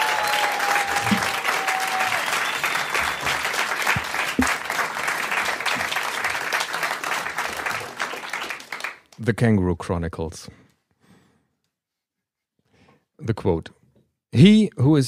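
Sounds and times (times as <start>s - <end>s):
long whistle: 0.0s - 3.6s
audience applauding: 0.0s - 9.2s.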